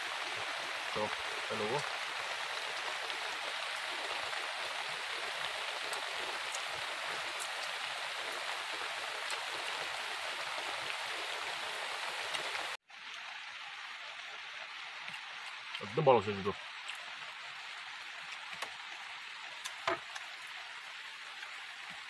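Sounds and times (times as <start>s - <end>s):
water hissing: 0.0s - 12.8s.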